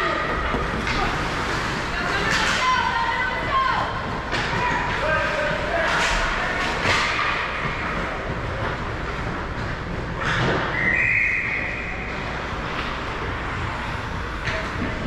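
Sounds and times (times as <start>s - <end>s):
crowd hubbub: 0.0s - 15.0s
referee's whistle: 10.7s - 12.1s.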